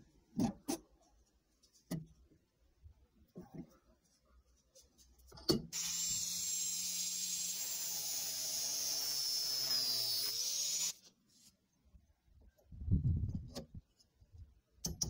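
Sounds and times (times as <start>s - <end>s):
angle grinder whine: 5.8s - 11.0s.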